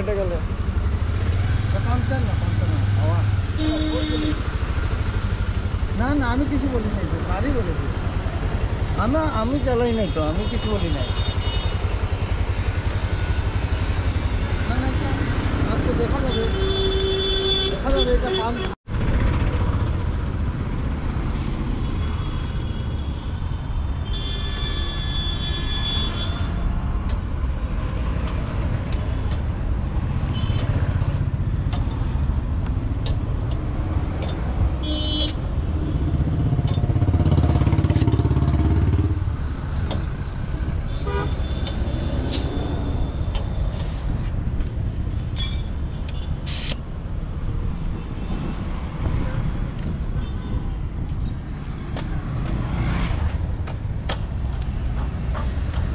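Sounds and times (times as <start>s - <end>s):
road traffic: 0.0s - 55.9s
vehicle horn honking: 3.6s - 4.5s, 34.8s - 35.4s, 40.9s - 41.8s.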